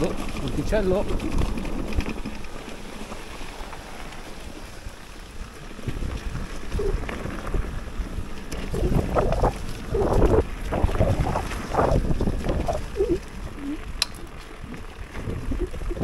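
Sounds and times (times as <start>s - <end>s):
mountain bike rolling on trail: 0.0s - 16.0s
wind buffeting microphone: 5.7s - 16.0s.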